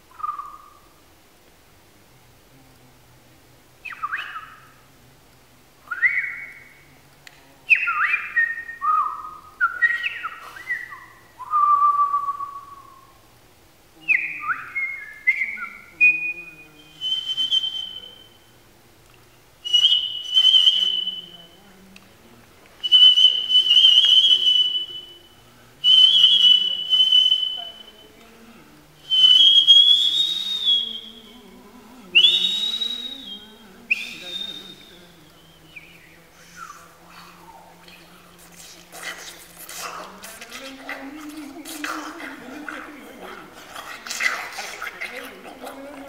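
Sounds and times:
person making whistle-like mouth sounds: 0.1 - 0.8, 7.7 - 13.2, 14.0 - 18.4, 19.6 - 21.6, 22.8 - 28.2, 29.0 - 46.0.

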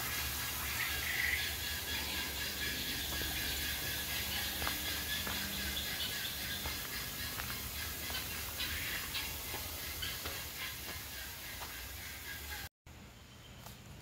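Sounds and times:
steady hiss: 0.0 - 12.6
faint ticks and short calls: 0.0 - 13.9
bird chirp: 0.1 - 14.0.

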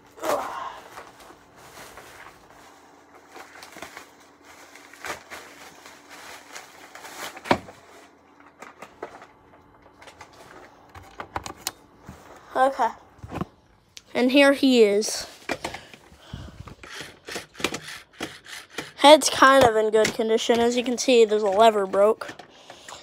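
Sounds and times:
packaging rustling: 0.9 - 10.9.

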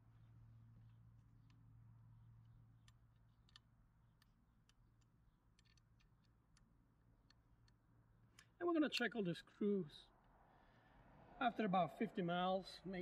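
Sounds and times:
hand tool clicking on screws: 2.9 - 7.8.

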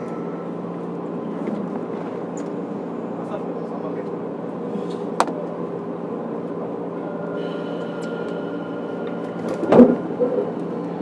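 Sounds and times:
train motor hum: 0.0 - 11.0
faint high tone: 6.9 - 11.0.

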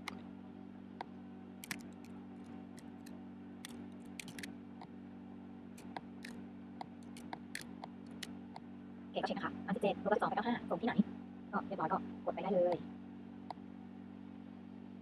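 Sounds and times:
laptop keys clicking: 1.6 - 2.1, 2.8 - 4.5, 5.8 - 8.3.

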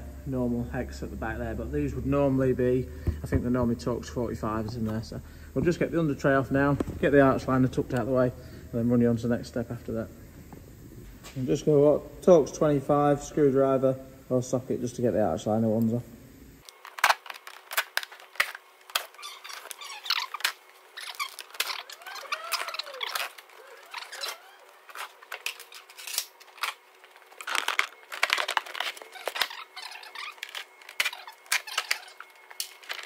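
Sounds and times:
plastic squeaking: 16.7 - 33.0.

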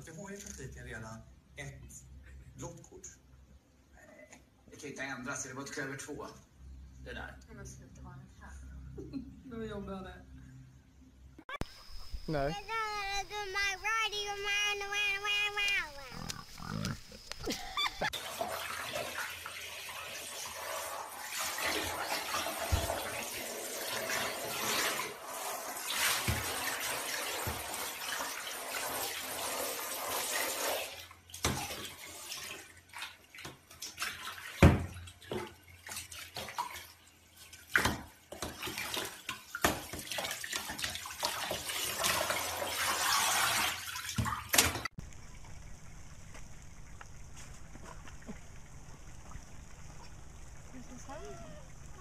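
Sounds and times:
knocks against bathtub: 34.6 - 35.5.

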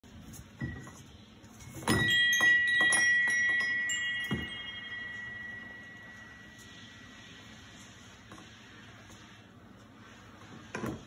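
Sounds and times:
chimes ringing: 1.7 - 7.2.

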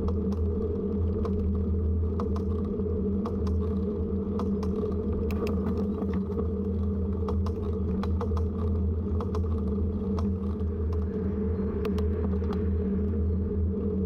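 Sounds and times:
bicycle rolling rumble: 0.0 - 14.0.

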